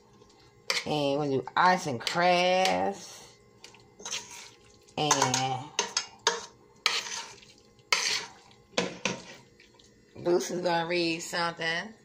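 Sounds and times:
spoon scraping a metal pot: 0:04.0 - 0:09.5.

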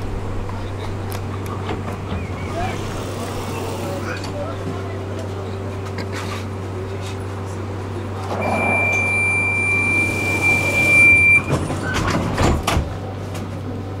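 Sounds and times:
tram doors shutting: 0:00.0 - 0:14.0
tram electrical hum: 0:00.0 - 0:14.0
high door warning tone: 0:08.4 - 0:12.1.

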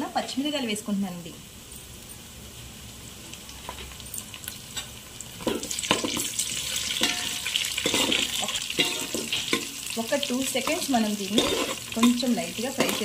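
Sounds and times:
onions sizzling in oil: 0:00.0 - 0:13.0
spatula scraping a pan: 0:05.9 - 0:09.8, 0:10.6 - 0:13.0.

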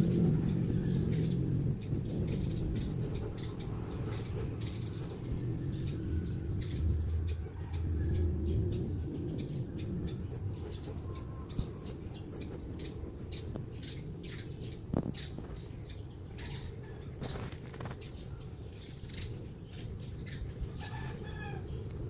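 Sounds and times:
pen scratching on paper: 0:00.0 - 0:00.9, 0:01.8 - 0:12.9
low rumble: 0:00.0 - 0:17.9.

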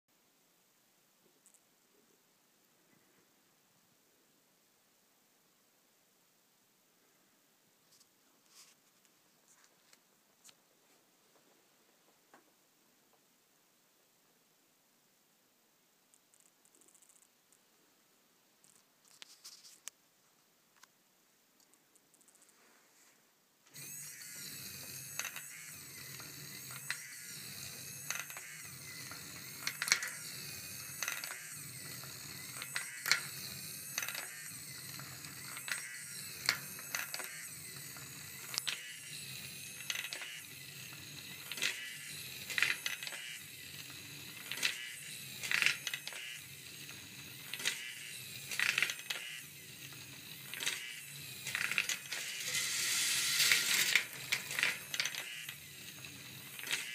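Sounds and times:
small electric motor running: 0:23.7 - 0:56.9
steel balls clicking and clattering: 0:29.0 - 0:38.8, 0:48.4 - 0:49.2, 0:51.4 - 0:55.3.

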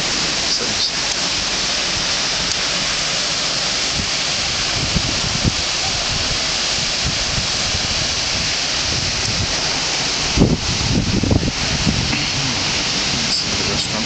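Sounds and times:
wind and surf hissing: 0:00.0 - 0:14.0
wind buffeting microphone: 0:03.7 - 0:14.0.

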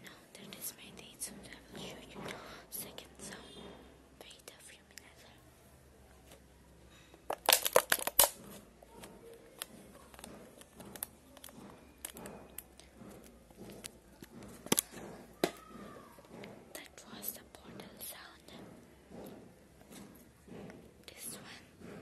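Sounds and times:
earphone cable crackling: 0:07.3 - 0:08.4.

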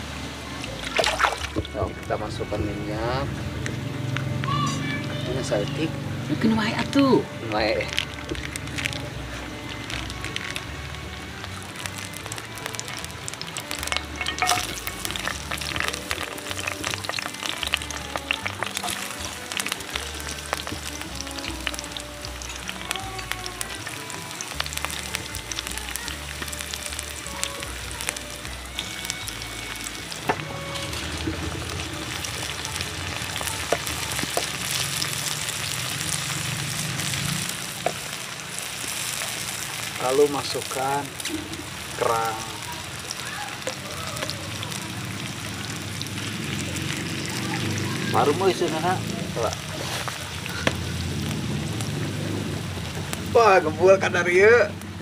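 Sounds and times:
oil sizzling in a frying pan: 0:00.0 - 0:55.0
wooden spatula stirring: 0:49.6 - 0:50.8.

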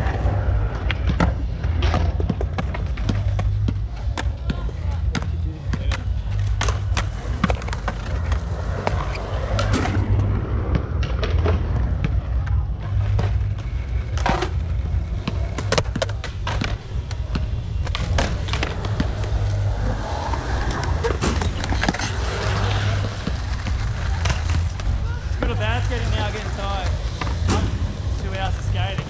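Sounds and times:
skateboard wheels rolling on concrete: 0:00.0 - 0:29.0
low rumble: 0:06.2 - 0:29.0.

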